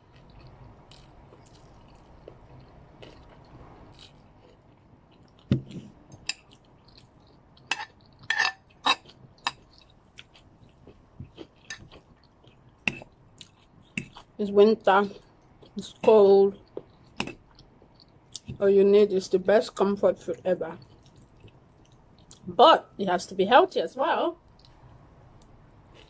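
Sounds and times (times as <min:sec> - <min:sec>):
person chewing food: 0:00.0 - 0:14.4, 0:16.6 - 0:18.6, 0:20.8 - 0:22.4, 0:24.5 - 0:26.0.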